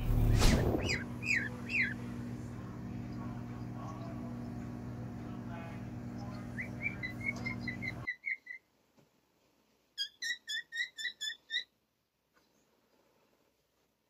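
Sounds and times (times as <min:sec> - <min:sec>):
steady hum: 0:00.0 - 0:08.1.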